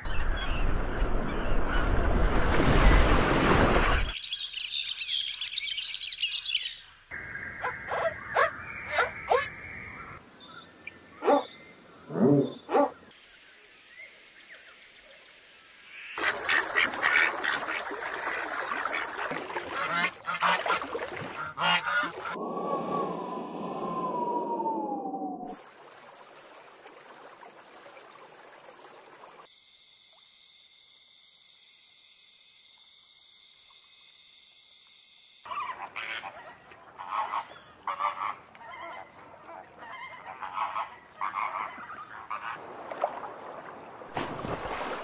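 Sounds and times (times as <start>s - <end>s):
rushing water: 0.0s - 4.2s, 13.1s - 22.4s, 25.5s - 29.5s, 35.7s - 45.0s
birds chirping: 3.7s - 14.9s
ducks quacking: 16.2s - 22.4s, 35.5s - 42.6s.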